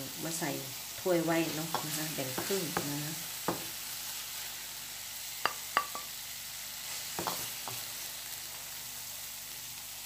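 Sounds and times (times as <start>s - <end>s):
coconut and sugar sizzling in pan: 0.0s - 10.0s
spatula knocking on pan: 1.7s - 3.7s, 5.4s - 6.1s.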